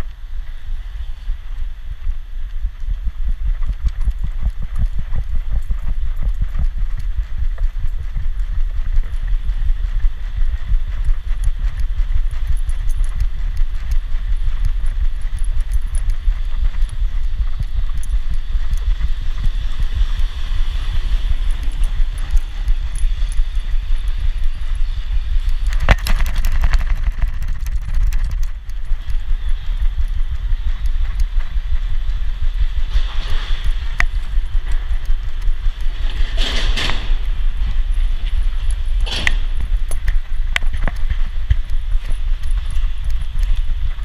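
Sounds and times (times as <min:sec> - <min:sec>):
camera thudding with footsteps: 0:00.0 - 0:44.0
outdoor background noise: 0:00.0 - 0:44.0
sharp click: 0:38.6 - 0:43.6.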